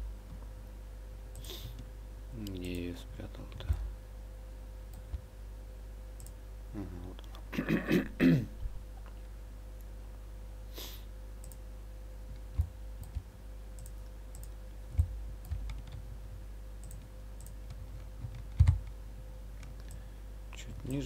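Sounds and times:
low electrical hum: 0:00.0 - 0:21.0
computer mouse clicks: 0:12.3 - 0:16.0, 0:16.8 - 0:19.0, 0:19.6 - 0:20.0.

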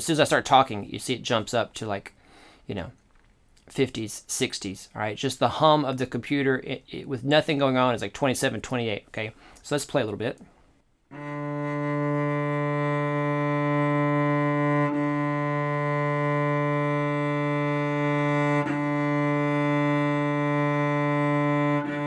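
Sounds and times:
cello bowing long low note: 0:11.1 - 0:22.0.

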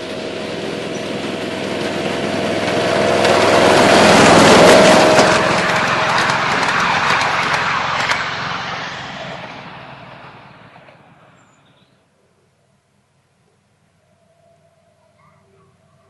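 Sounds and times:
sharp track clicks: 0:00.0 - 0:09.6
miniature train passing on track: 0:00.0 - 0:12.1.

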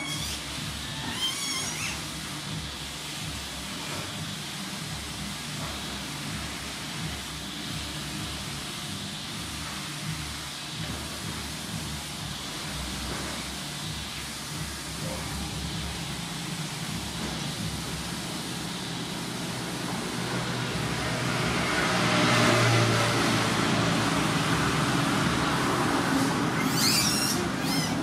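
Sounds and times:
vehicle engine humming: 0:00.0 - 0:28.0
high chirping: 0:26.5 - 0:28.0.

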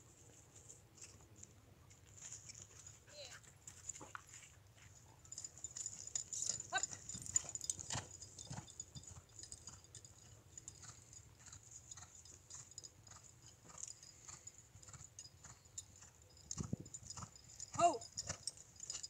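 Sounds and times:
horse hoofbeats on sand: 0:04.8 - 0:19.0.

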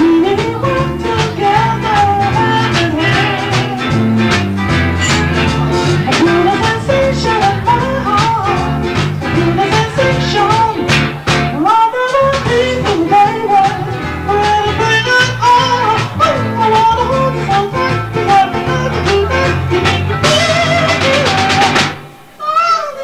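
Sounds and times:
band with bass and drums: 0:00.0 - 0:22.4
man singing in falsetto: 0:22.4 - 0:23.0.

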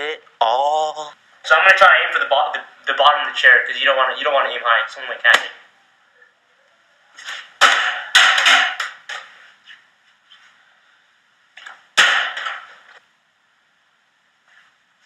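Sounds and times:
ball hitting hard surfaces: 0:07.3 - 0:09.4, 0:11.6 - 0:12.9.

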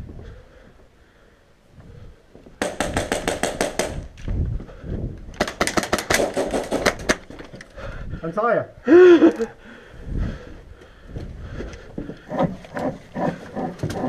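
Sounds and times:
airsoft rifle firing bursts: 0:02.6 - 0:04.1, 0:05.4 - 0:07.2.

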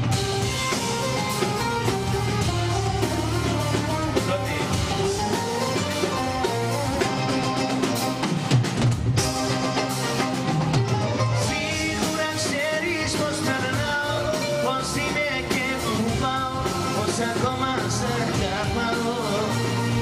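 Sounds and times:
live band playing pop: 0:00.0 - 0:20.0
man singing into microphone: 0:11.4 - 0:20.0.

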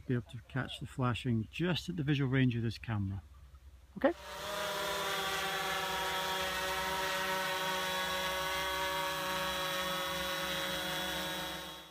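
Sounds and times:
drone propellers whining: 0:04.1 - 0:11.9.

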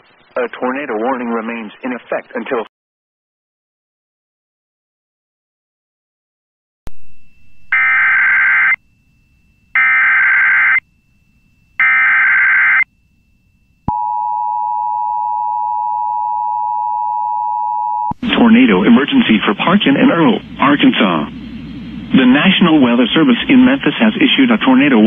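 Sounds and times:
steady attention tone: 0:06.9 - 0:25.0
screechy digital data tones: 0:07.3 - 0:08.8, 0:09.5 - 0:10.8, 0:11.8 - 0:13.0.

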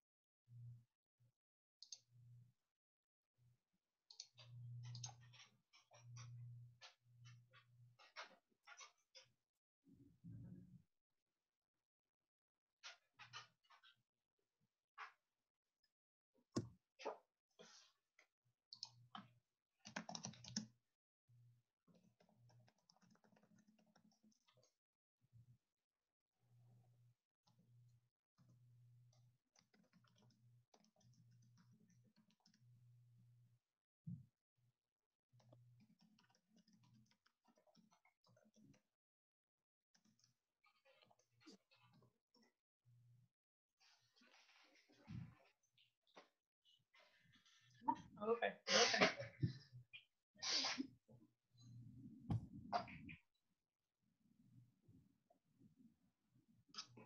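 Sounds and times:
computer keyboard typing: 0:19.8 - 0:20.7, 0:21.9 - 0:24.5
keyboard typing clicks: 0:19.8 - 0:20.7.

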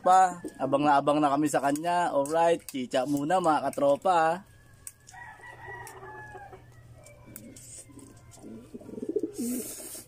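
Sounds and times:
faint rooster crowing: 0:04.2 - 0:09.3.

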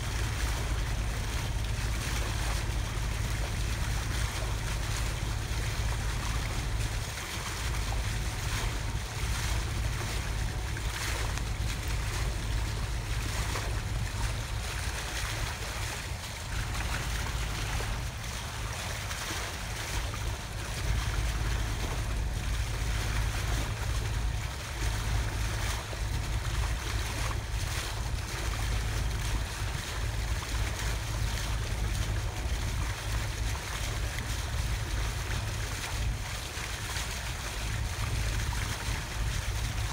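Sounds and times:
low rumble: 0:00.0 - 0:39.9
water rushing along hull: 0:00.0 - 0:39.9.

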